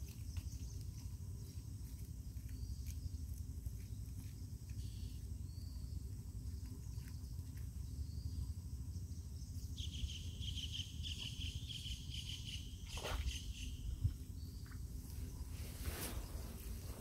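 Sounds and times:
low outdoor rumble: 0:00.0 - 0:17.0
rapid high chirping call: 0:09.7 - 0:13.9.

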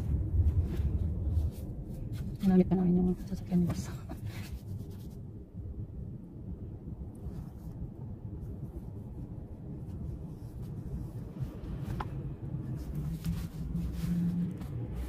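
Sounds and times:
car engine and road rumble: 0:00.0 - 0:15.0
faint clicks and rustles: 0:07.1 - 0:15.0.

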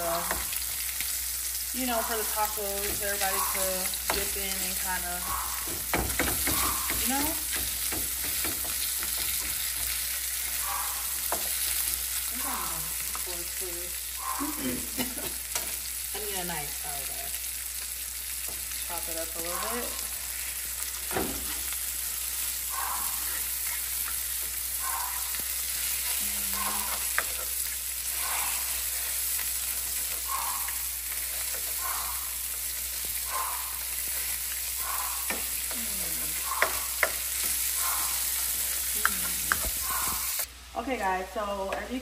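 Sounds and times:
fish sizzling in a frying pan: 0:00.0 - 0:42.0
spatula tapping on a pan: 0:05.3 - 0:10.0, 0:27.0 - 0:27.3, 0:35.2 - 0:37.6
spatula scraping a pan: 0:22.7 - 0:38.9.

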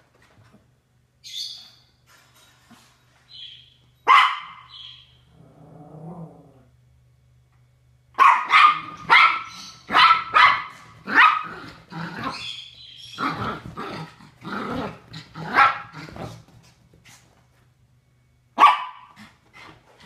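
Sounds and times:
small dog barking: 0:04.0 - 0:04.7, 0:08.2 - 0:11.5, 0:18.6 - 0:19.2.

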